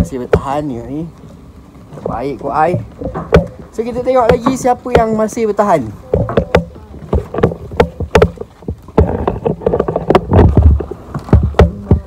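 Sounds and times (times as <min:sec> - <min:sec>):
heavy low thump: 0:02.0 - 0:05.4
knocks on wooden deck: 0:02.0 - 0:05.5, 0:06.1 - 0:12.0.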